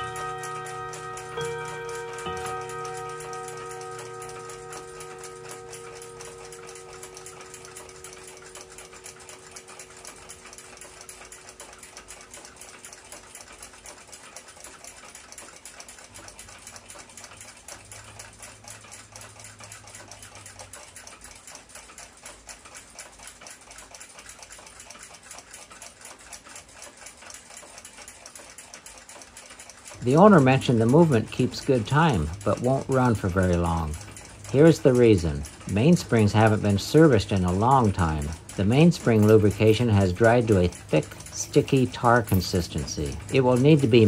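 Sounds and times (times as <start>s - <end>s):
ringing tones: 0.0s - 13.0s
fast mechanical ticking: 0.0s - 44.0s.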